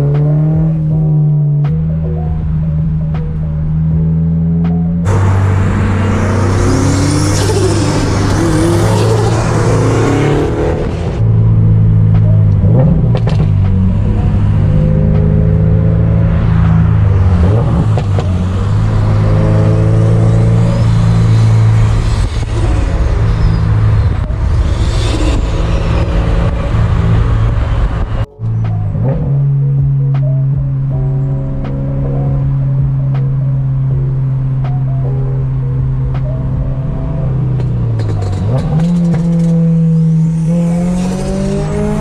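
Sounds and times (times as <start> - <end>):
car engine running: 0.0 - 42.0
road noise inside car: 0.0 - 42.0.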